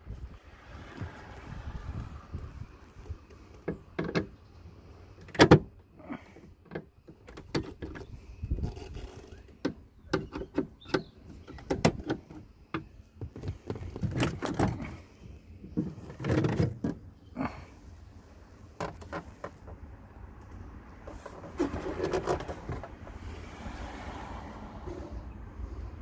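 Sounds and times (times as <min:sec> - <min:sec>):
plastic panel clicks and knocks: 0:09.5 - 0:14.8.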